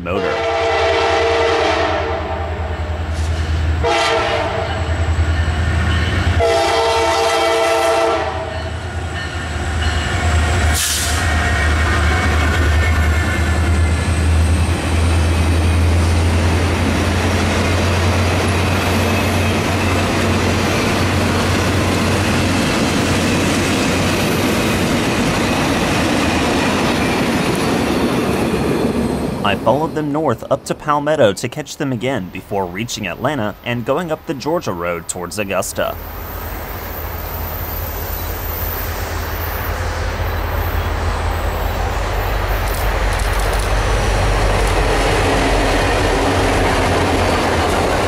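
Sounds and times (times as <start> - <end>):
locomotive air horn: 0.1 - 2.7, 3.8 - 4.9, 6.4 - 8.6
train wheels on rails: 2.8 - 31.2, 32.7 - 48.0
diesel engines rumbling: 8.9 - 36.2.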